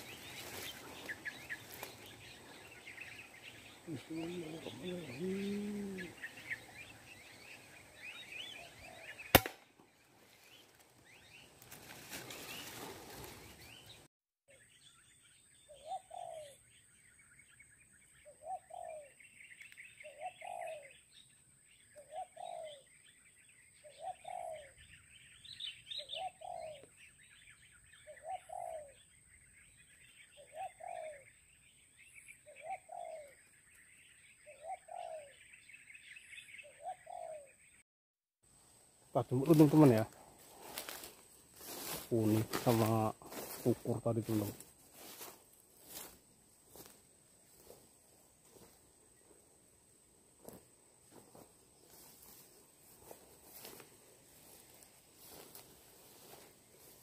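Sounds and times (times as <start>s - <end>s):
small birds chirping: 0.0s - 37.8s, 38.6s - 57.0s
dove cooing: 3.6s - 6.7s, 15.8s - 16.6s, 20.0s - 20.9s, 22.0s - 22.8s, 23.9s - 24.8s, 26.0s - 26.9s, 28.0s - 29.0s, 30.4s - 31.2s, 32.4s - 33.4s, 34.4s - 35.4s, 36.6s - 37.6s
air rifle shot: 9.3s - 9.6s.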